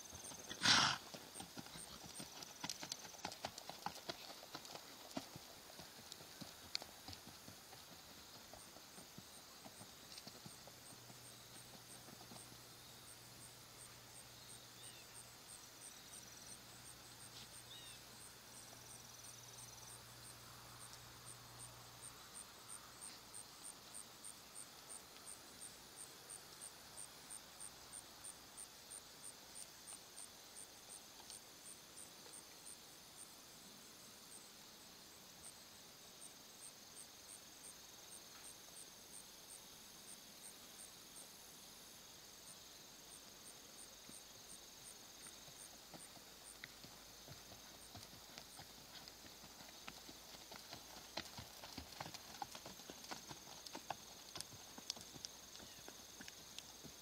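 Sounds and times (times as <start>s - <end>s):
background hiss: 0.0s - 57.0s
insect chirping: 0.0s - 57.0s
horse hoofbeats on sand: 45.5s - 57.0s.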